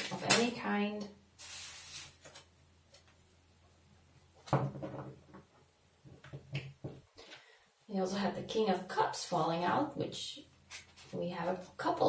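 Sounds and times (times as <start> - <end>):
cards shuffling rustles: 1.4 - 2.5.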